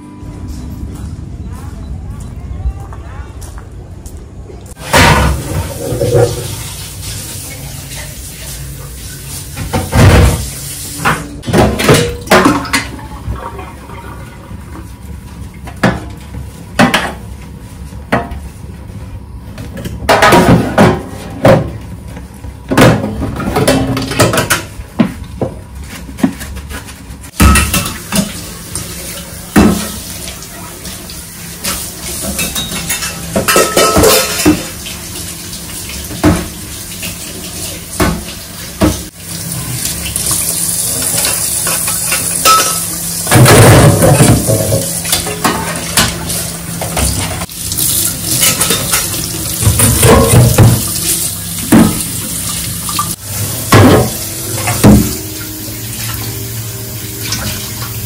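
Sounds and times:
pots and pans clanking in sink: 4.7 - 17.4, 18.0 - 18.5, 19.5 - 58.0
water running from tap: 4.8 - 11.2, 27.4 - 58.0.

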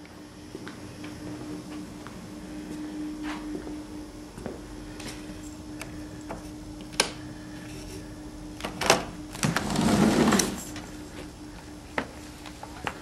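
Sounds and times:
faint steady hum: 0.0 - 13.0
sliding door scraping rumble: 9.4 - 10.8.

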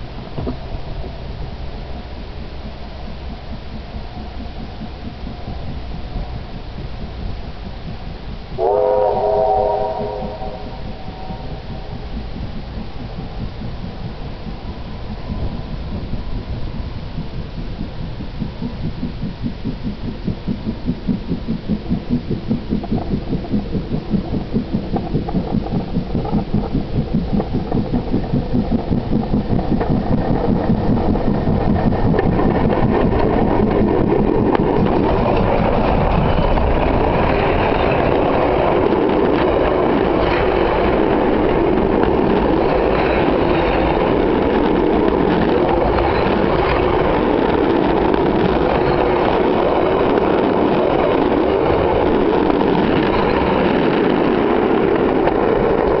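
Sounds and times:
steam locomotive exhaust beats: 0.0 - 56.0
steel wheels clattering on rails: 20.3 - 56.0.

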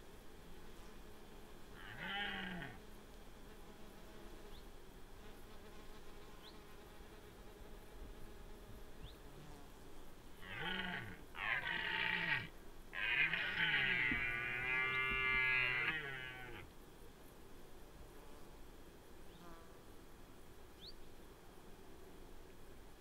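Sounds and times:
deer stags roaring: 1.8 - 2.8, 10.4 - 16.7.

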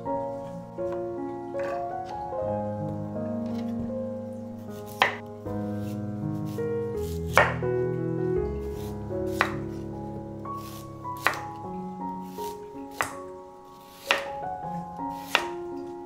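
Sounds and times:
soft background music: 0.0 - 16.0
knife chopping on wooden board: 4.9 - 5.2, 7.3 - 7.6, 9.3 - 9.7, 10.6 - 11.5, 12.4 - 13.2, 14.0 - 14.3, 15.1 - 15.6.

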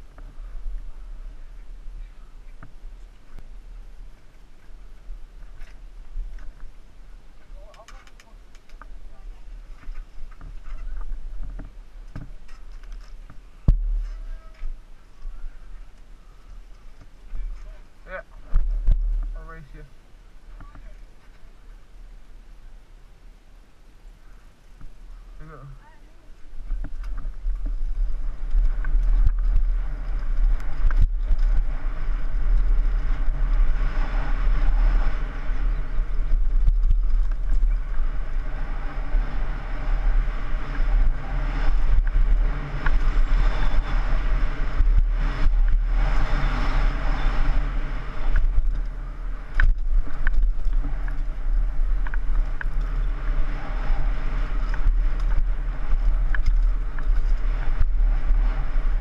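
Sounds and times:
bike rattling: 0.0 - 19.6, 26.3 - 59.0
wind buffeting microphone: 0.0 - 22.2, 24.5 - 59.0.

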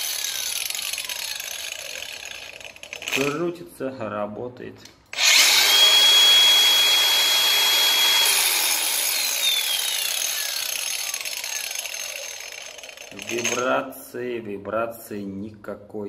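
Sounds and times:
angle grinder whine: 0.0 - 3.4, 5.1 - 13.6.

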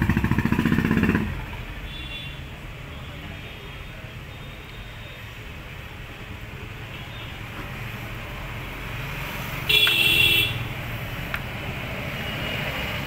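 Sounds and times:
road traffic rumble: 0.0 - 13.0
vehicle horn blast: 9.7 - 10.7.

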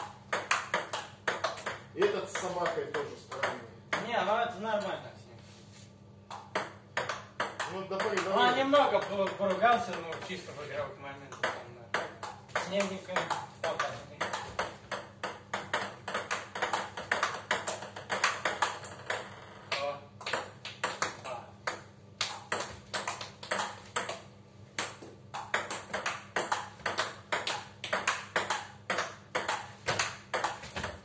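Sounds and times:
ping-pong ball hitting rackets and table: 0.0 - 5.0, 6.3 - 10.4, 11.3 - 31.0.

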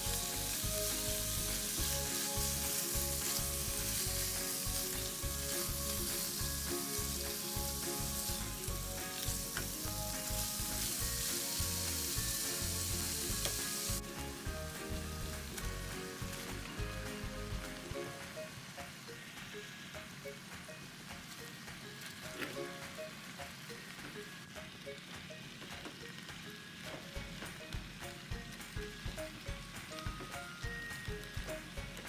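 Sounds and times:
meat sizzling in a frying pan: 0.0 - 20.0.

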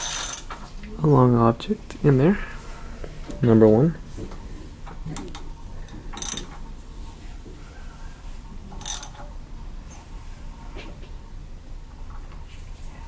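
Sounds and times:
socket ratchet clicking: 0.0 - 0.5, 6.2 - 6.5, 8.8 - 9.2.

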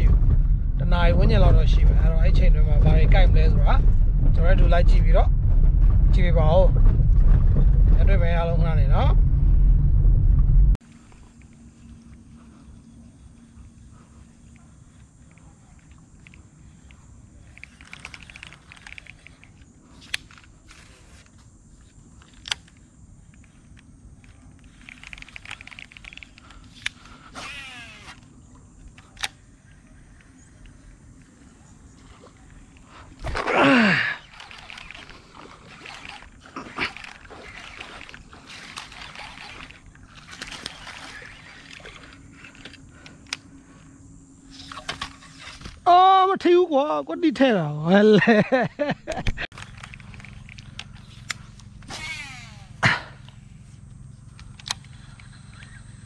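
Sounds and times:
sharp clicks: 15.3 - 20.6, 22.2 - 29.4, 49.1 - 52.3, 54.3 - 56.0
fishing reel clicks: 16.2 - 20.5, 22.2 - 28.3, 34.2 - 43.4
rustling through wet grass: 34.2 - 42.6.

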